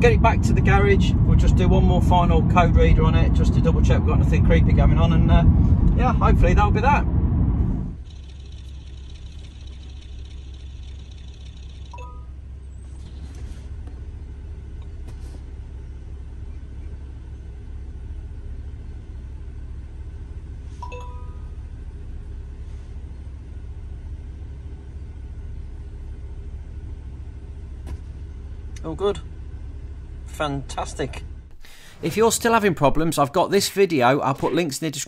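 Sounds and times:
car engine idling: 0:00.0 - 0:33.1
short electronic beeps: 0:11.8 - 0:12.4, 0:20.8 - 0:21.5.

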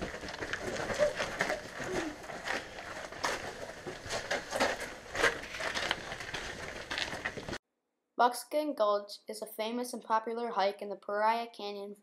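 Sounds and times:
footsteps on gravel: 0:00.0 - 0:07.6.

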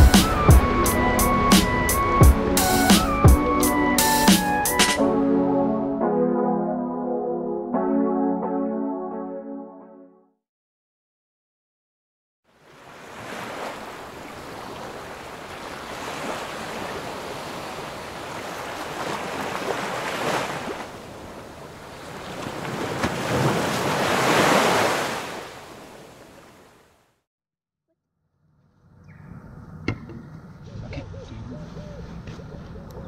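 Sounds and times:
waves breaking on shore: 0:12.5 - 0:27.0.

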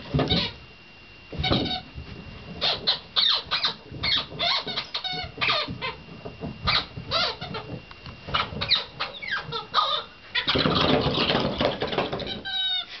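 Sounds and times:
squeaky toy squeaking: 0:08.4 - 0:11.0.

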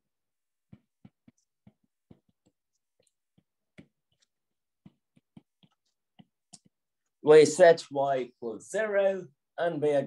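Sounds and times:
stylus tapping on glass screen: 0:00.6 - 0:06.8.

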